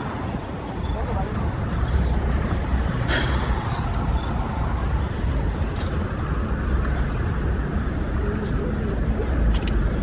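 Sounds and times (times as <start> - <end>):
city street traffic rumble: 0.0 - 10.0.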